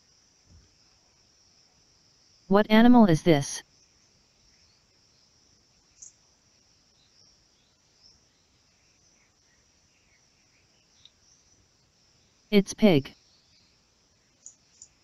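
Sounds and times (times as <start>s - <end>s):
faint high-pitched hiss: 3.7s - 15.0s.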